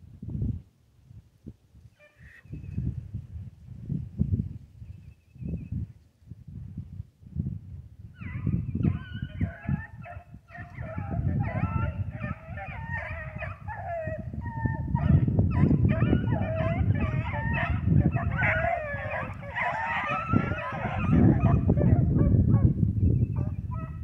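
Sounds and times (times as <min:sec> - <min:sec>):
hounds baying: 0:08.2 - 0:22.7, 0:23.4 - 0:24.0.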